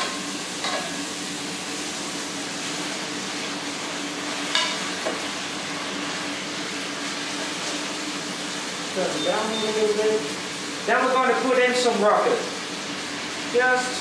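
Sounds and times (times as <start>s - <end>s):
food sizzling in a frying pan: 0.0s - 14.0s.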